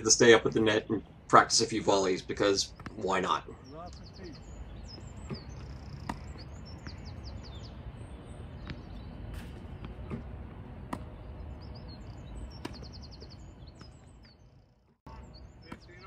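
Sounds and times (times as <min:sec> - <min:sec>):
birds chirping and trilling: 0:00.0 - 0:16.0
tennis balls bouncing on court: 0:02.7 - 0:03.2, 0:03.9 - 0:14.5, 0:15.1 - 0:16.0
racket hitting tennis ball: 0:08.6 - 0:11.2, 0:12.6 - 0:13.0.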